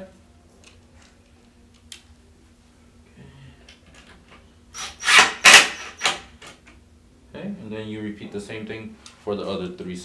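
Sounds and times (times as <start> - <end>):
cordless drill driving screw: 4.8 - 6.2
screw grinding into wood: 4.8 - 6.2.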